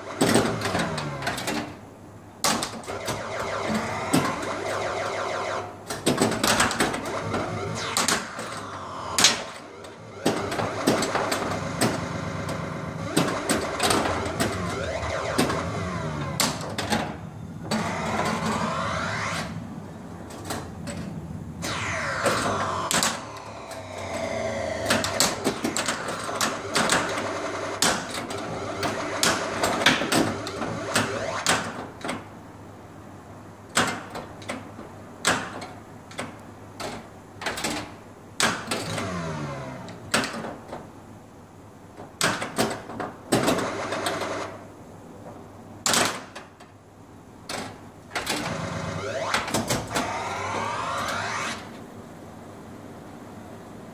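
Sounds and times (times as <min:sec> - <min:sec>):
pinball electronic sound effects: 0:00.0 - 0:01.5, 0:02.7 - 0:19.8, 0:21.6 - 0:32.0, 0:48.2 - 0:51.7.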